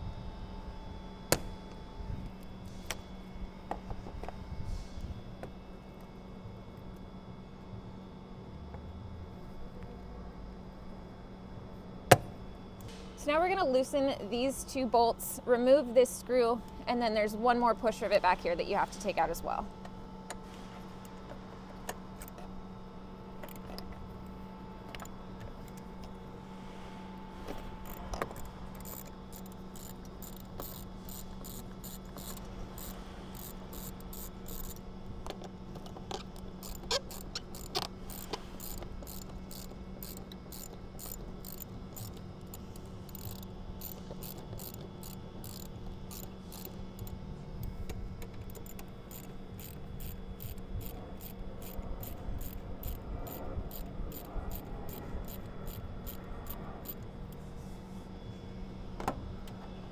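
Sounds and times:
steady low hum: 0.0 - 59.9
socket ratchet clicking: 27.8 - 47.2, 48.2 - 57.0.

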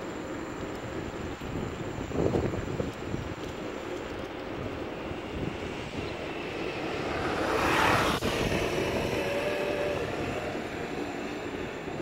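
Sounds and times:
wind rumble on microphone: 0.0 - 12.0
motor vehicle passing by: 6.0 - 11.5.

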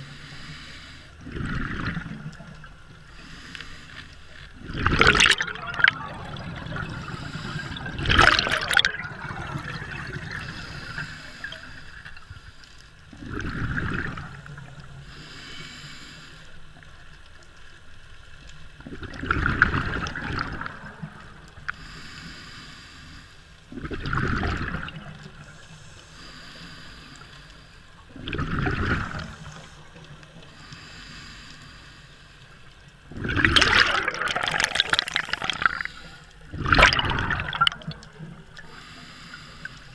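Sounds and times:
exhaled bubbles rushing: 1.2 - 2.7, 4.6 - 11.0, 13.2 - 14.9, 18.8 - 21.4, 23.7 - 25.5, 28.1 - 29.6, 33.1 - 38.7
regulator hiss: 15.1 - 16.7, 25.4 - 28.0.

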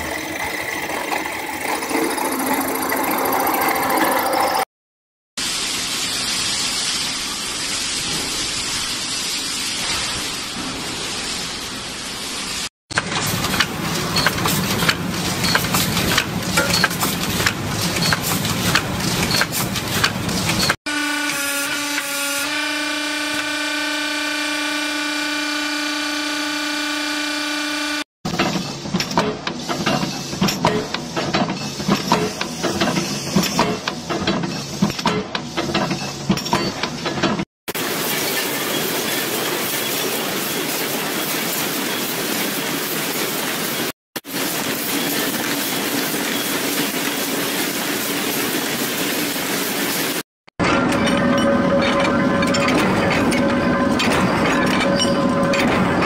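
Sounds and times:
machine hum of even tones: 0.0 - 4.7
machinery running noise: 0.0 - 4.7, 12.9 - 56.0.

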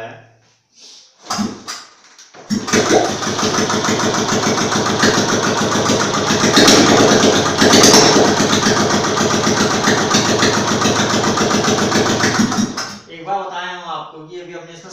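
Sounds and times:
motorcycle engine with open exhaust: 2.6 - 13.0.

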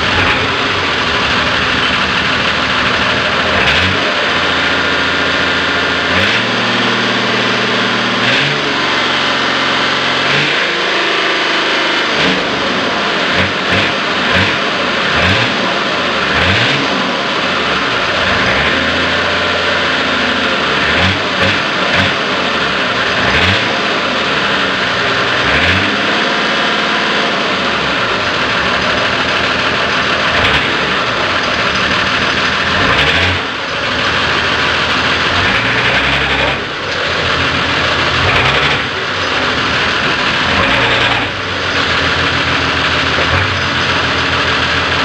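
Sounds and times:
diesel engine revving roughly: 0.0 - 45.0.

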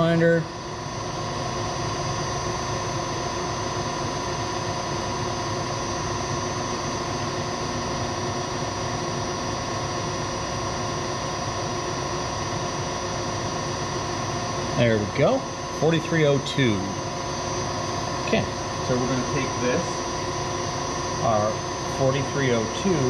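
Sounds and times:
milling machine motor humming: 12.6 - 23.0.

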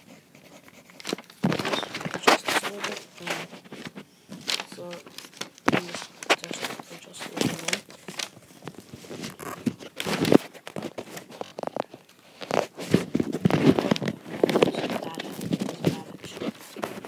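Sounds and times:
microphone handling noise: 5.7 - 17.0.

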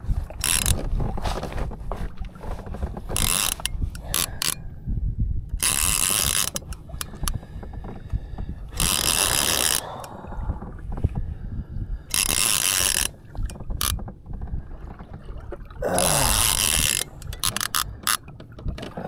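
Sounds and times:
water rumble: 0.0 - 19.0
wind: 0.0 - 19.0
line pulled off reel drag: 0.3 - 0.9, 3.0 - 4.7, 5.5 - 7.4, 8.7 - 10.2, 12.1 - 14.0, 16.0 - 18.3
fishing reel ratcheting clicks: 0.4 - 0.8, 3.2 - 4.6, 5.5 - 7.4, 8.7 - 10.1, 12.1 - 14.0, 16.0 - 18.2.

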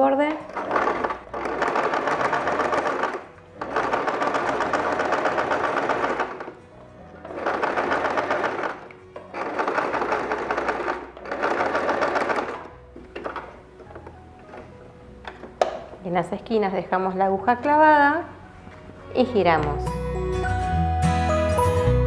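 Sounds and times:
soft background music: 0.0 - 22.0
electric sewing machine stitching: 0.3 - 6.6, 7.3 - 12.7.

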